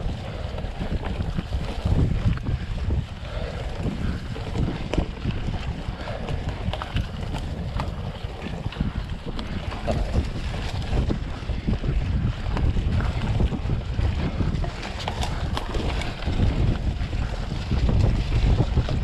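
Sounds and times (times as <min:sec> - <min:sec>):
bike clicks and rattles: 0:00.0 - 0:19.0
wind buffeting microphone: 0:00.0 - 0:19.0.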